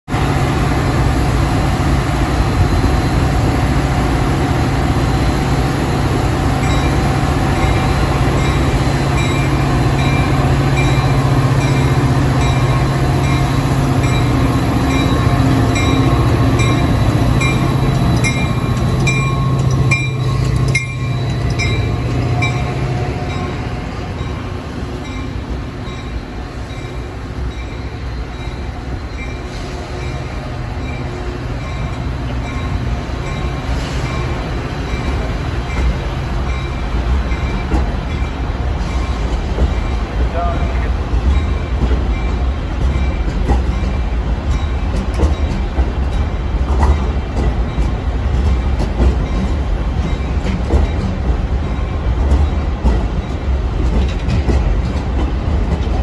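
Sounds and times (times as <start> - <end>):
diesel locomotive running: 0.1 - 56.0
locomotive bell ringing: 2.4 - 46.6.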